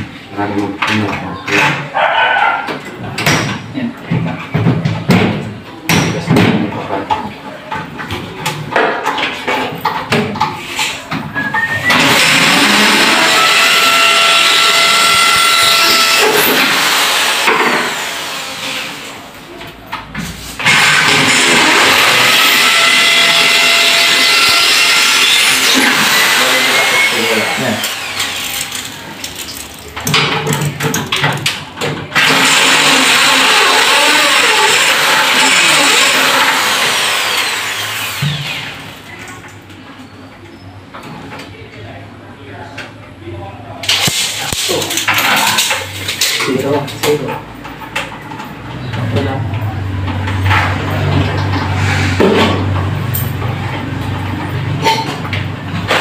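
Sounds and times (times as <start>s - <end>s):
power drill whining: 11.8s - 19.1s, 20.6s - 28.9s, 32.2s - 38.8s.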